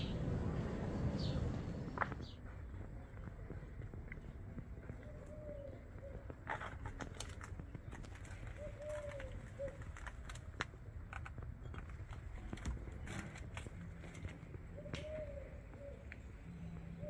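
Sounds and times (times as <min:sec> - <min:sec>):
dove cooing: 0:05.0 - 0:06.4, 0:08.2 - 0:10.1, 0:14.7 - 0:17.0.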